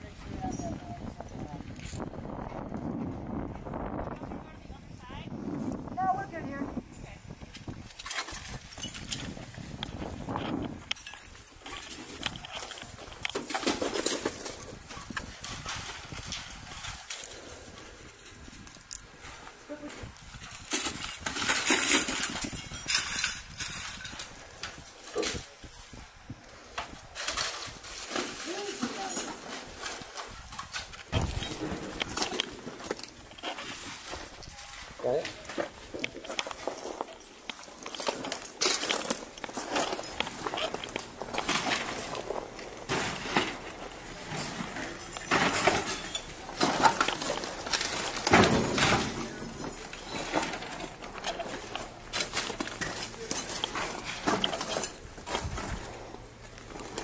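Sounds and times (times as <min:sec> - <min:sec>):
footsteps crunching over debris: 0:07.4 - 0:57.0.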